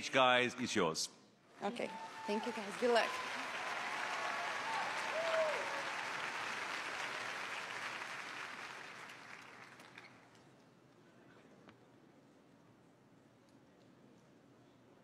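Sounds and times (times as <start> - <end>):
audience cheering: 1.6 - 9.6
audience applauding: 1.6 - 10.4.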